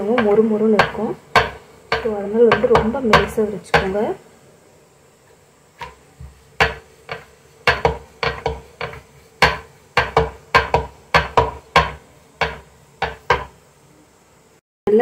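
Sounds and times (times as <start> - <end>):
rolling pin knocking on board: 0.0 - 4.0, 5.8 - 13.6.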